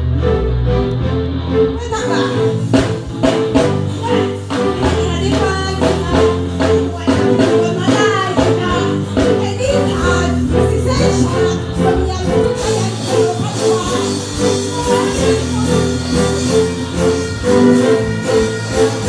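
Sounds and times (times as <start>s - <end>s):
bass line: 0.0s - 19.0s
drum kit beating: 0.0s - 19.0s
woman singing into microphone: 12.0s - 19.0s.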